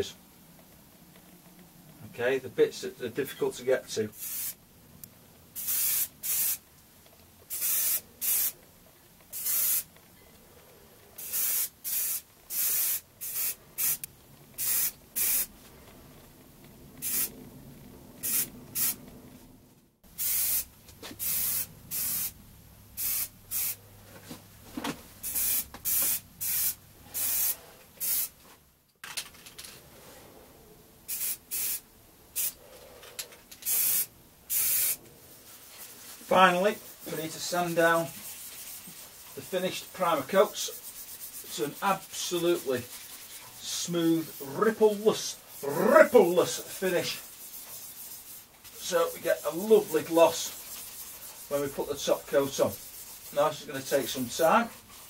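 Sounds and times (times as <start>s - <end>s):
aerosol spray bursts: 4.2s - 4.6s, 5.6s - 6.6s, 7.5s - 8.6s, 9.4s - 9.9s, 11.2s - 14.0s, 14.6s - 15.5s, 17.0s - 17.3s, 18.2s - 19.0s, 20.2s - 22.4s, 23.0s - 23.8s, 25.2s - 28.4s, 31.1s - 31.8s, 32.4s - 32.6s, 33.6s - 35.0s.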